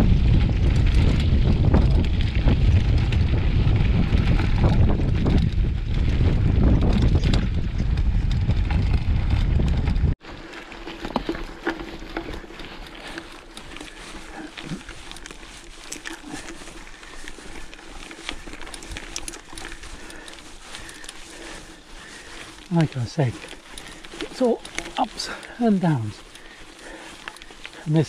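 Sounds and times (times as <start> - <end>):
wind buffeting microphone: 0.0 - 10.2
bike rolling on dirt track: 0.0 - 28.0
small clicks and rattles: 0.0 - 28.0.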